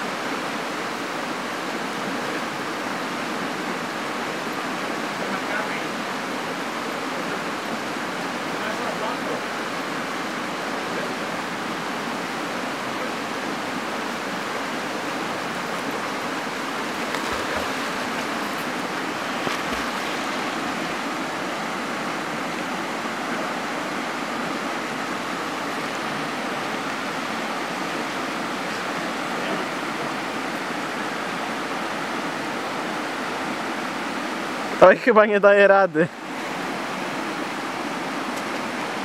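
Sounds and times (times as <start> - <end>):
river water rushing over rocks: 0.0 - 39.0
dog splashing in water: 16.9 - 18.7.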